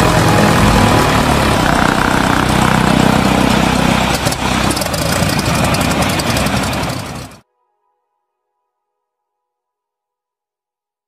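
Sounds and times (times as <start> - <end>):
propeller engine drone: 0.0 - 7.4.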